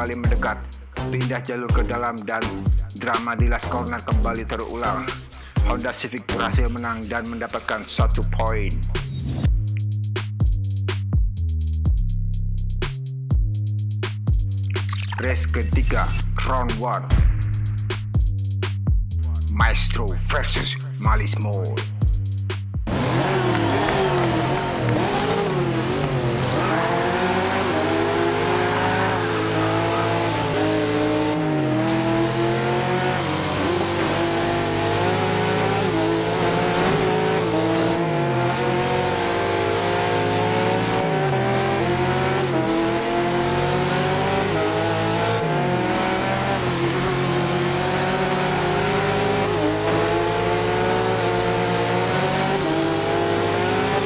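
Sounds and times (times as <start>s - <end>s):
race car engines revving: 22.8s - 54.0s.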